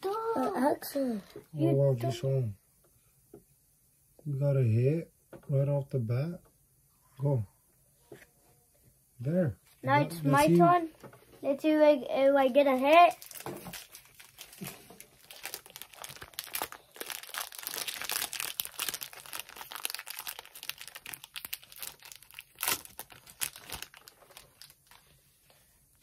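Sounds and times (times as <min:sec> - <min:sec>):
foil wrapper crinkling and tearing: 0:12.6 - 0:25.2.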